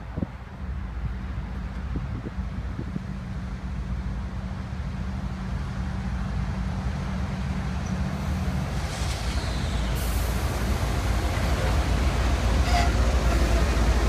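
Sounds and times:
locomotive engines rumbling: 0.4s - 14.0s
brief hiss: 8.6s - 11.7s.

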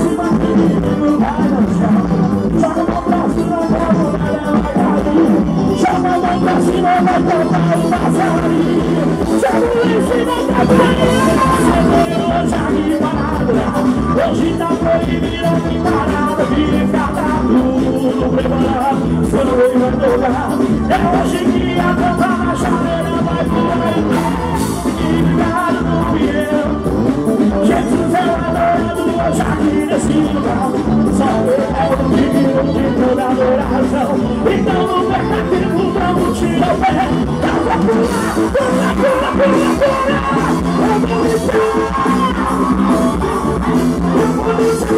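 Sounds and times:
gospel band playing amplified: 0.0s - 44.9s
man singing lead: 0.0s - 44.9s.

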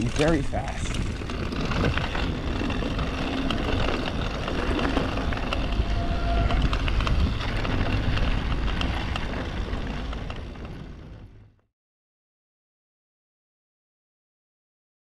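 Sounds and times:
wind buffeting microphone: 0.0s - 11.4s
bike clicks and rattles: 0.0s - 11.5s.

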